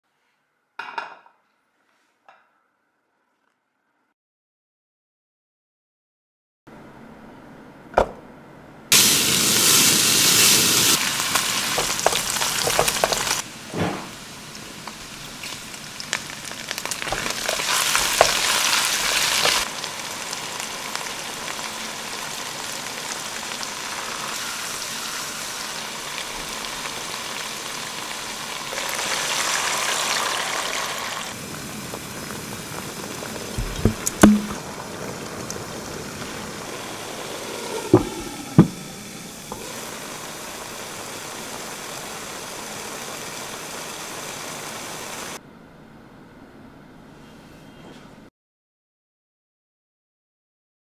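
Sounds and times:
food sizzling in a wok: 8.9 - 45.4
sharp knocks: 33.6 - 34.6.

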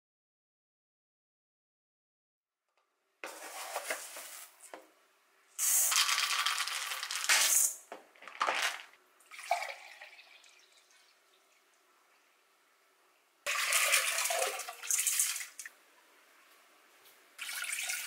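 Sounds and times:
dry rice pouring: 5.7 - 7.7
water trickling into jug: 9.2 - 12.2, 17.4 - 18.0
rice being rinsed: 13.5 - 15.7.

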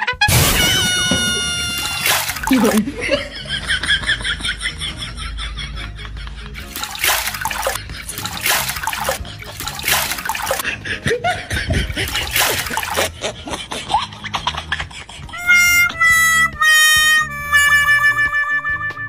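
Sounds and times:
water splashing on body and floor: 0.6 - 2.9, 6.7 - 10.6, 11.9 - 13.1.

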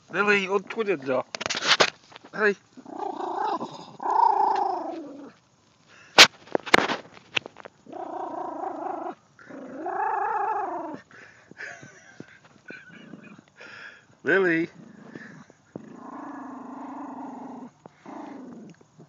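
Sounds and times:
dog whining: 2.8 - 5.3, 7.9 - 11.0.

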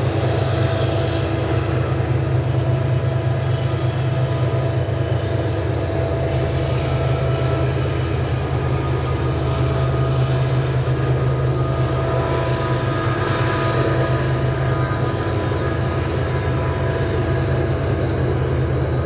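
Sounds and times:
diesel locomotive engine drone: 0.0 - 19.0
high steady whine: 0.0 - 19.0.

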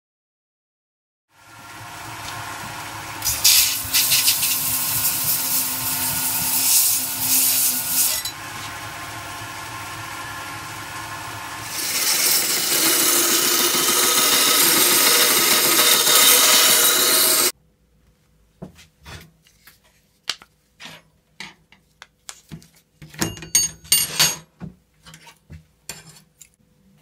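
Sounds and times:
belt grinder running: 1.7 - 17.5
steel grinding on belt: 3.2 - 8.4, 11.6 - 17.5.

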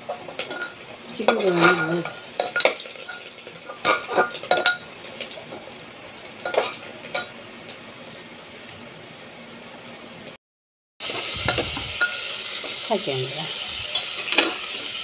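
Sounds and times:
low frying sizzle: 0.0 - 10.4, 11.0 - 15.0
metal spoon scraping a pot: 0.3 - 4.8.

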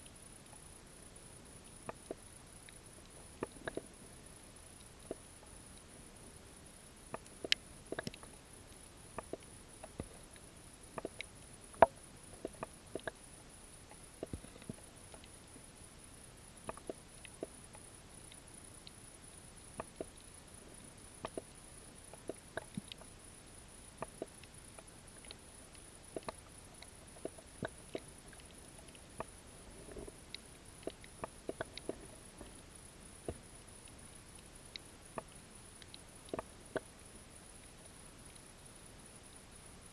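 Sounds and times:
faint high whine: 0.0 - 39.9
underwater clicks and snaps: 3.4 - 3.9, 7.1 - 8.3, 9.2 - 10.1, 11.0 - 13.2, 14.2 - 15.3, 16.7 - 17.5, 21.2 - 21.5, 25.2 - 32.6.

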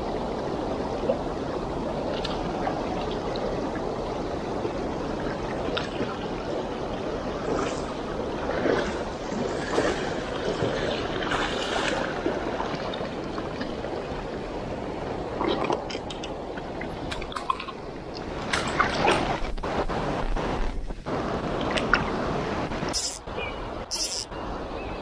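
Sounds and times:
river rushing over stones: 0.0 - 25.0
close splashes and knocks: 7.4 - 13.9, 15.4 - 20.4.

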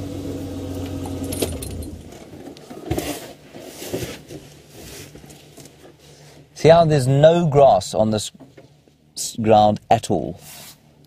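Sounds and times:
vehicle engine humming: 0.0 - 2.7.

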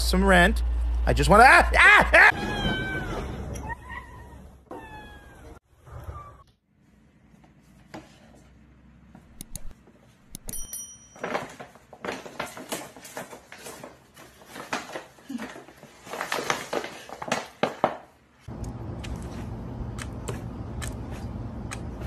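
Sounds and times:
paper bag rustling and crinkling: 11.2 - 17.8.

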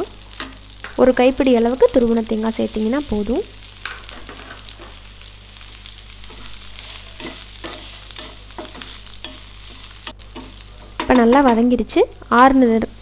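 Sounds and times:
food sizzling in a pan: 0.0 - 13.0
wooden spatula scraping a pan: 4.0 - 5.0, 6.3 - 11.0.

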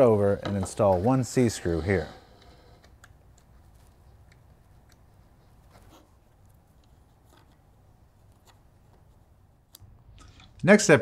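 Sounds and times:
faint clicks and taps: 2.4 - 7.7.

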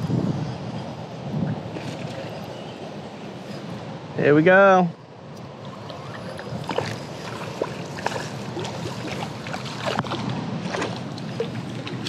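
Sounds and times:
water splashing and lapping: 1.1 - 4.0, 5.2 - 12.0.

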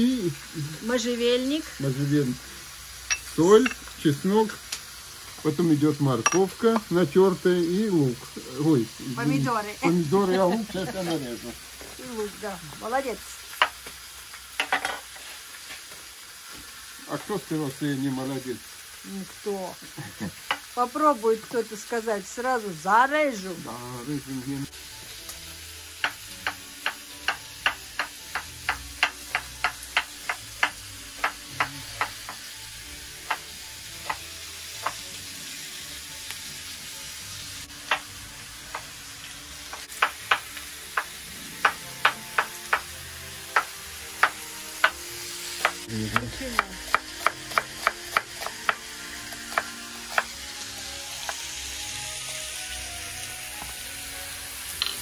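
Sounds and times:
meat sizzling in a pan: 0.0 - 55.0
knife chopping on wooden board: 26.0 - 32.4, 39.7 - 42.9, 43.5 - 45.0, 45.6 - 48.8, 49.5 - 50.3.

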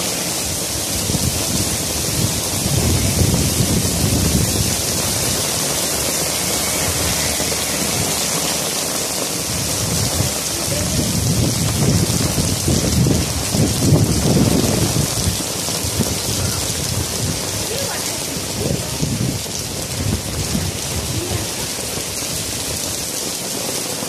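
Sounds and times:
heavy rain on paving: 0.0 - 24.0.

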